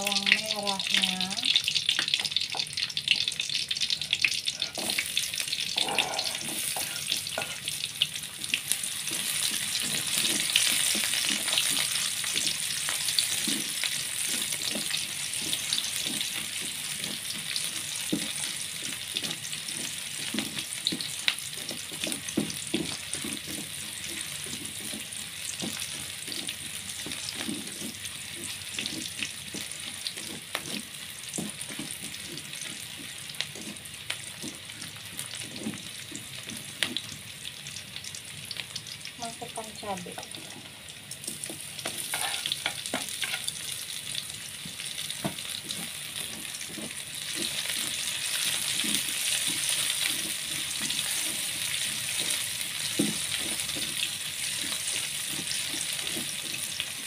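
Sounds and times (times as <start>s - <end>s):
garlic sizzling in oil: 0.0s - 57.0s
utensil knocking and scraping pan: 8.4s - 37.2s, 41.3s - 43.6s, 44.6s - 57.0s.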